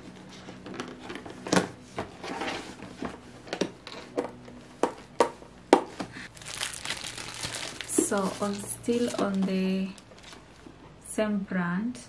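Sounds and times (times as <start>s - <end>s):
packaging knocks: 5.8s - 10.3s
packaging rustling: 6.3s - 10.7s.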